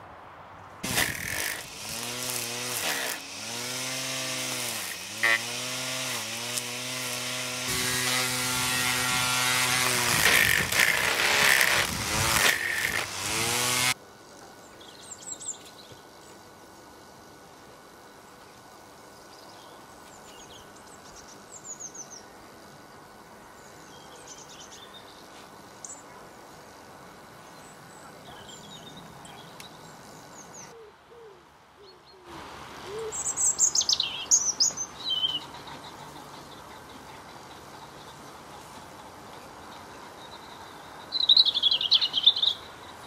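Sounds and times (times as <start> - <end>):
outdoor background hiss: 0.0 - 43.0
small songbirds chirping: 18.0 - 30.8, 32.9 - 43.0.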